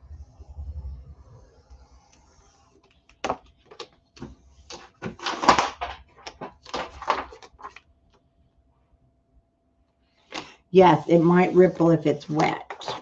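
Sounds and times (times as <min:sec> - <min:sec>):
paper rustling and scraping: 0:01.8 - 0:07.8, 0:12.3 - 0:13.0.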